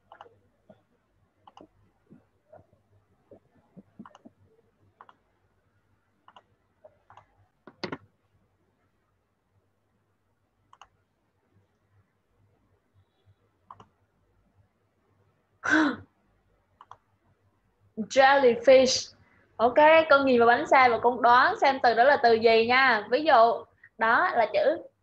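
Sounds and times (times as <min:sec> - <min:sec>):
mouse and keyboard clicks: 0:00.0 - 0:00.4, 0:01.4 - 0:01.8, 0:03.3 - 0:04.4, 0:06.2 - 0:08.1, 0:10.7 - 0:11.0, 0:13.7 - 0:14.0, 0:16.8 - 0:17.0.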